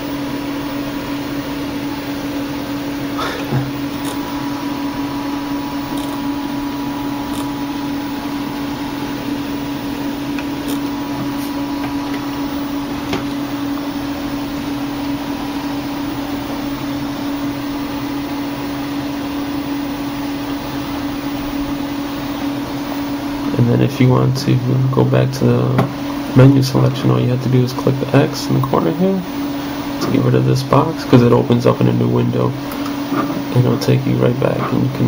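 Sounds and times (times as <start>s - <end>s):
steady machine hum: 0.0s - 35.0s.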